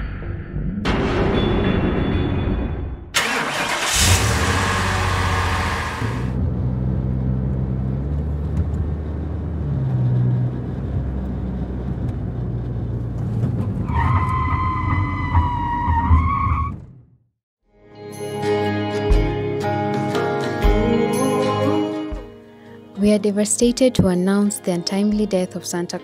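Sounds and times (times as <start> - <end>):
car engine starting and revving: 3.2 - 14.0.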